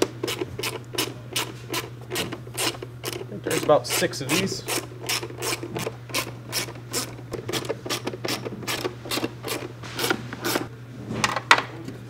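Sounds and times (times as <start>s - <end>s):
socket ratchet clicking: 0.0s - 10.6s.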